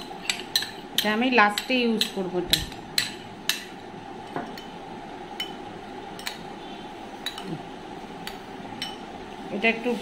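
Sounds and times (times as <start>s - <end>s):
spoon clinking against glass bowl: 7.2s - 7.5s, 8.2s - 9.1s.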